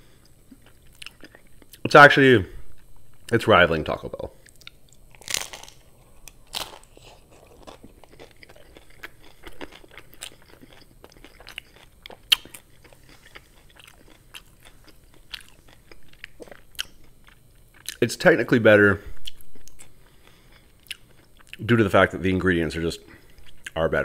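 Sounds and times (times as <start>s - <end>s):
chewing with small crunches: 0.1s - 1.9s, 4.4s - 18.1s, 19.2s - 21.8s
biting crunchy taco shell: 4.6s - 18.0s.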